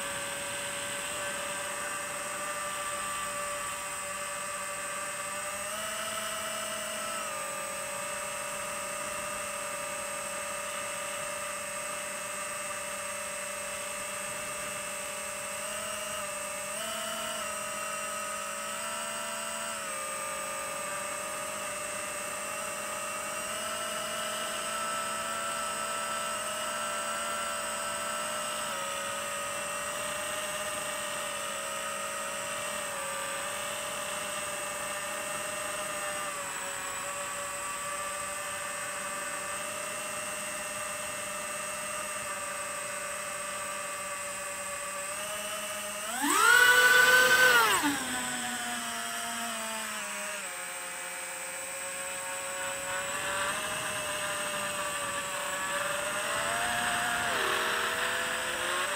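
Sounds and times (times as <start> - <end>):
quadcopter motors whining: 0.0 - 58.9.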